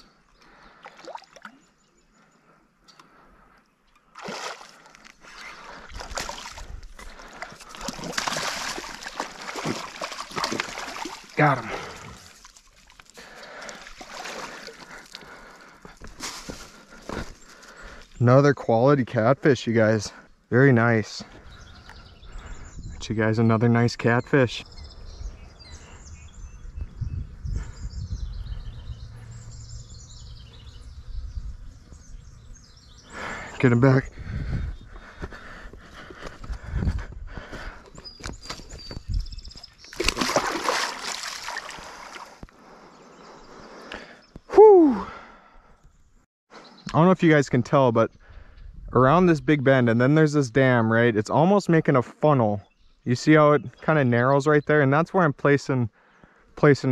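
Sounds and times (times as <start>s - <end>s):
fish thrashing and splashing: 4.2s - 15.3s, 39.6s - 42.4s.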